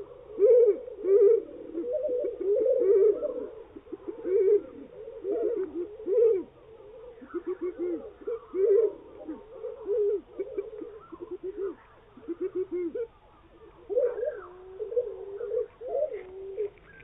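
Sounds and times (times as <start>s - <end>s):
slowed bird calls: 0.0s - 17.0s.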